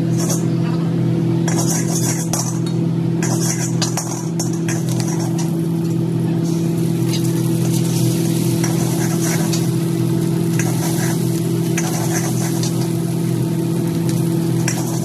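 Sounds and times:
steady low hum: 0.0s - 15.0s
food sizzling in a wok: 1.2s - 15.0s
ladle scraping and tapping a wok: 1.5s - 6.0s, 8.5s - 9.8s, 10.5s - 13.0s, 14.5s - 15.0s.

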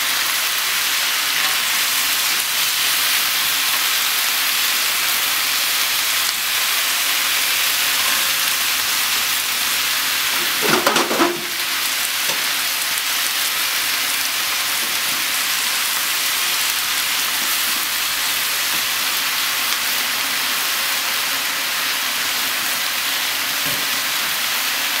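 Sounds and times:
eggplant sizzling in a pan: 0.0s - 25.0s.

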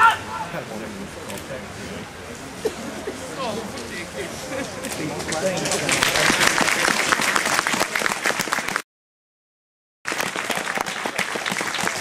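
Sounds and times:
spectators applauding: 5.1s - 8.8s, 10.1s - 12.0s.

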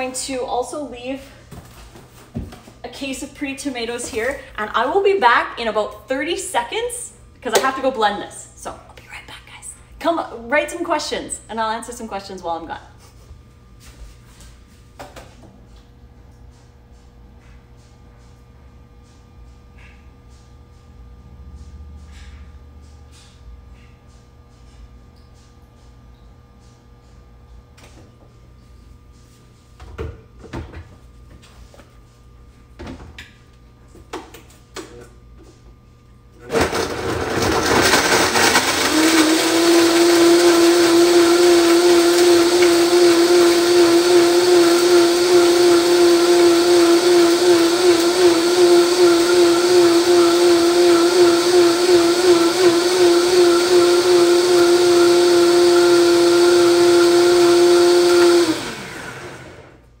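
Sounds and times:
blender motor whining: 36.5s - 59.8s.

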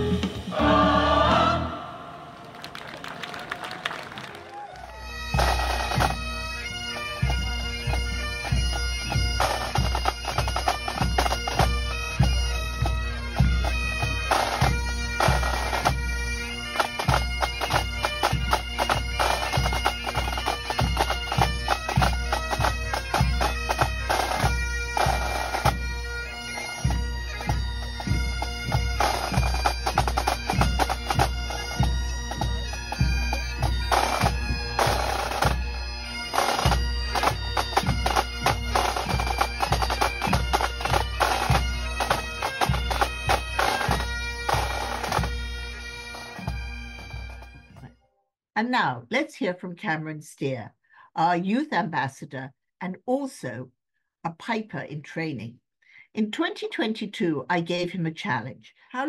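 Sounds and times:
bagpipes with drones: 0.0s - 2.5s, 4.8s - 47.8s
snare drum march beat: 36.3s - 45.3s.

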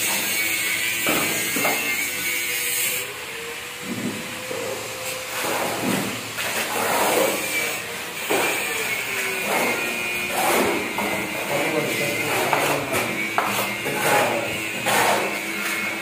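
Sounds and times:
trowel scraping wet concrete: 5.0s - 16.0s.

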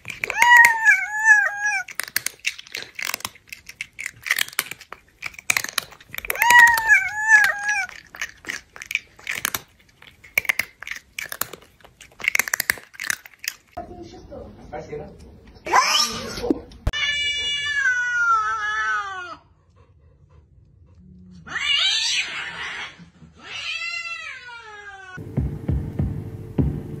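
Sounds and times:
crunching and chewing: 0.0s - 13.8s
cat meowing: 0.2s - 2.0s, 6.3s - 8.0s, 15.7s - 19.4s, 21.5s - 25.2s.

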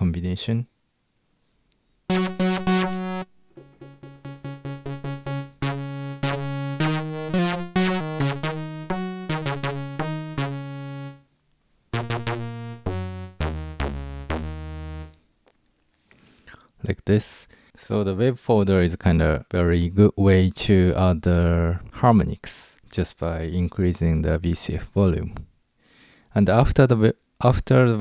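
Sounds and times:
synthesizer playing short notes: 2.1s - 11.2s, 12.0s - 15.2s.

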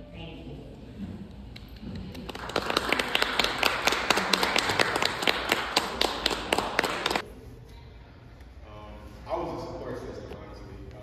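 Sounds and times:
audience applauding: 2.0s - 7.2s.

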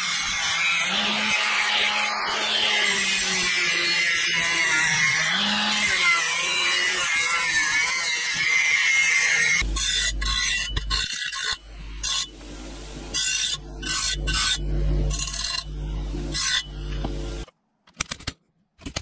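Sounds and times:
low steady hum: 11.6s - 17.5s.

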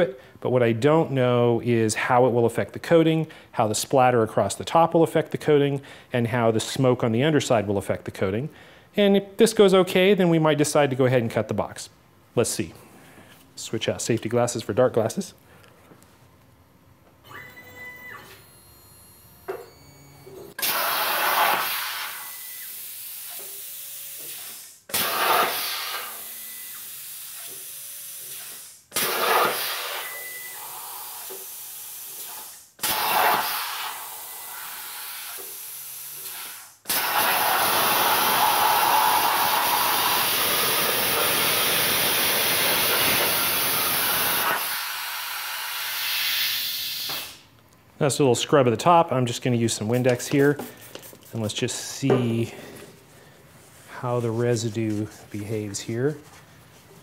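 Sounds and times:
plasma cutter hissing: 20.6s - 22.3s, 24.3s - 26.3s, 28.3s - 47.4s.

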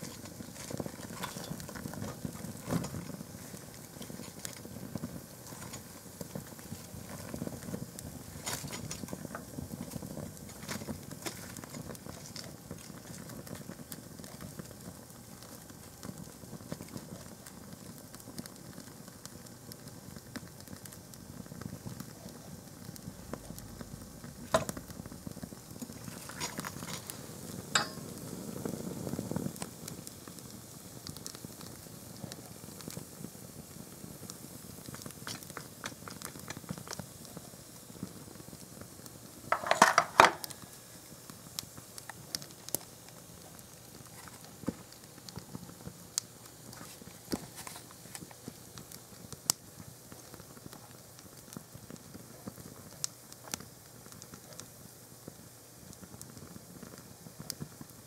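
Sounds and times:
low rush of flame: 0.0s - 39.6s
fire crackling: 0.0s - 58.0s
fire popping: 0.0s - 58.0s.

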